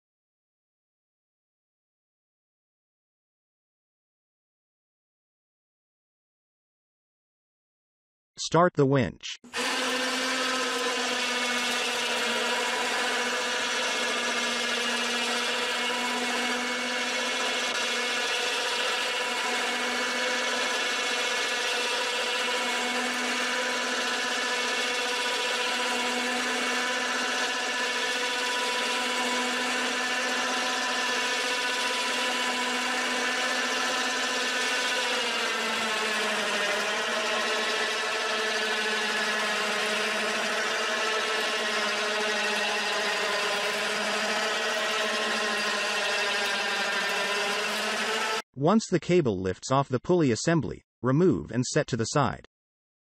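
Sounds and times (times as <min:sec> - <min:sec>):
electric winch whining: 0:09.5 - 0:48.4.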